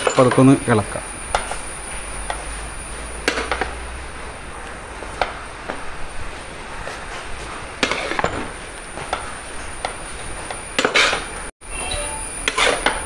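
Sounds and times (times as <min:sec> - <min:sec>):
metal ladle scraping a metal pot: 0:12.4 - 0:13.0.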